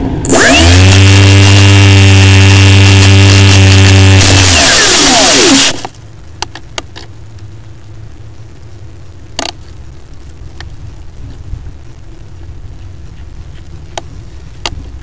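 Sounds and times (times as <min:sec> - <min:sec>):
model aeroplane motor winding down: 0:00.2 - 0:05.9
faint hiss: 0:04.6 - 0:15.0.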